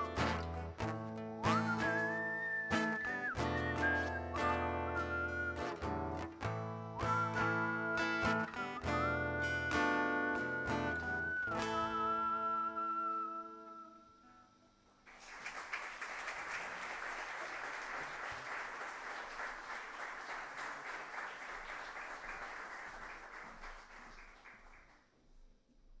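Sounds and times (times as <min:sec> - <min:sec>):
audience applauding: 0:15.0 - 0:25.1.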